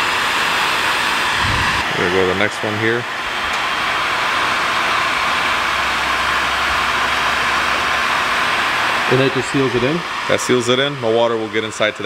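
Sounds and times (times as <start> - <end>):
heat gun blowing hot air: 0.0 - 12.0
low hum: 1.2 - 2.6.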